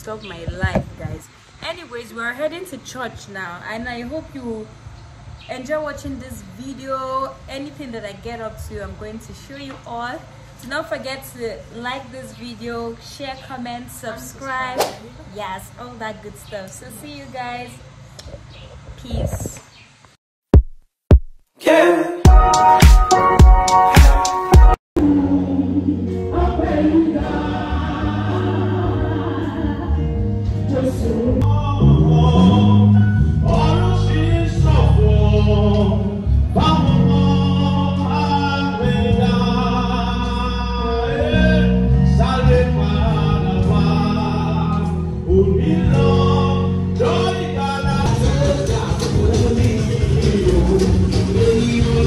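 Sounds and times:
instrumental accompaniment: 22.3s - 24.8s
choir and congregation singing: 25.0s - 31.5s, 45.5s - 52.0s.

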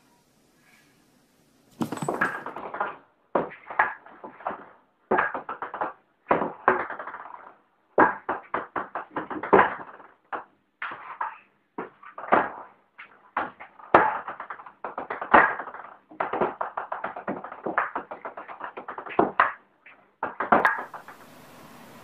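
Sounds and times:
faint hiss: 0.0s - 2.0s, 20.7s - 22.0s.

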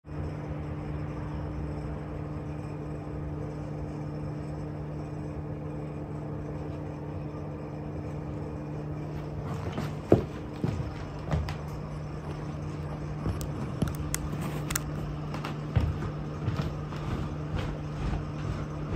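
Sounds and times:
low appliance hum: 0.0s - 18.9s.

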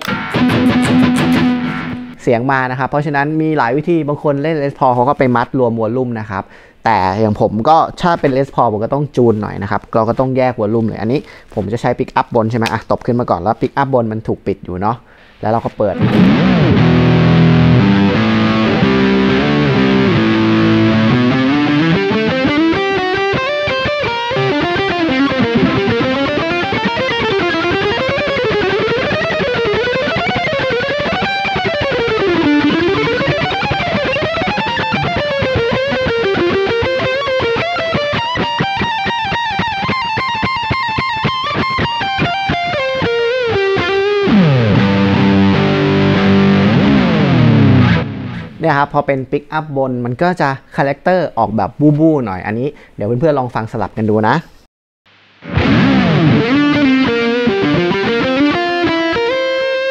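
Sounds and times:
electric guitar playing: 0.0s - 2.3s, 15.8s - 48.6s, 55.4s - 59.9s.

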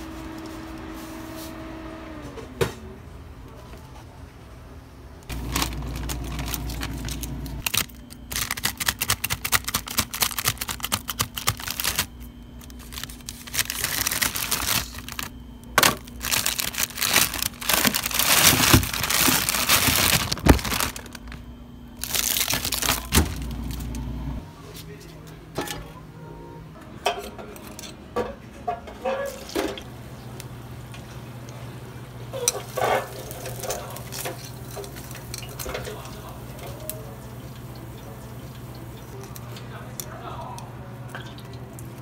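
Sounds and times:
steady low hum: 4.3s - 8.4s, 9.4s - 27.0s
food packaging crinkling: 5.3s - 24.0s.

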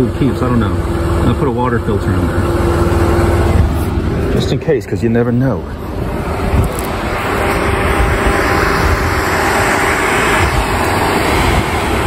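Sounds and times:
wind buffeting the microphone: 5.6s - 12.0s.

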